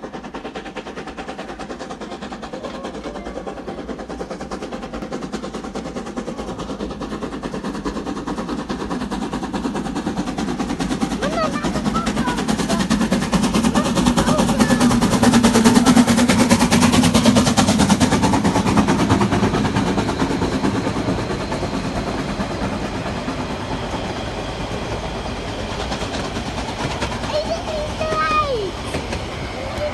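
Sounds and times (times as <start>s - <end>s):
steam locomotive exhaust beats: 0.0s - 29.9s
carriages rolling past: 11.2s - 25.2s.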